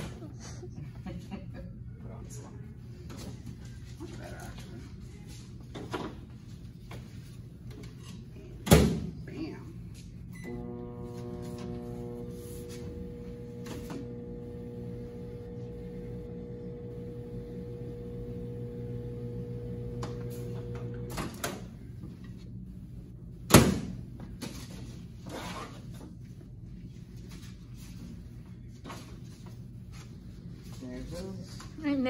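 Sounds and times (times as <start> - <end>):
microwave oven humming: 10.2 - 24.1.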